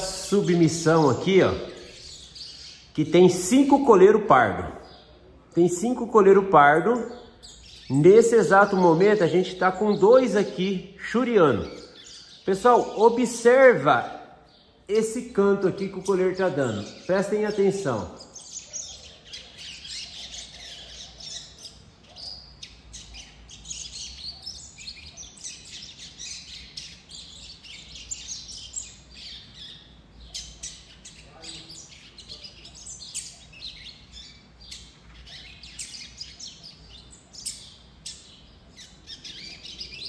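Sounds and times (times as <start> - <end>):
bird chattering high notes: 0.0 - 5.0.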